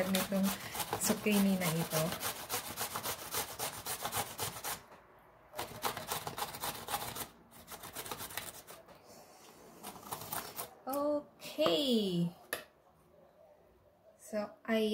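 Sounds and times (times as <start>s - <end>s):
zucchini rasping on a box grater: 0.0s - 4.8s, 5.6s - 8.8s.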